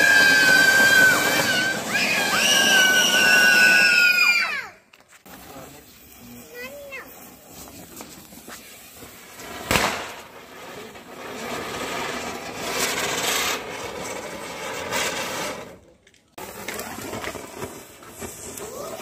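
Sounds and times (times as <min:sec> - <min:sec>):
firework hissing and crackling: 0:00.0 - 0:19.0
sharp bang: 0:09.7 - 0:10.2.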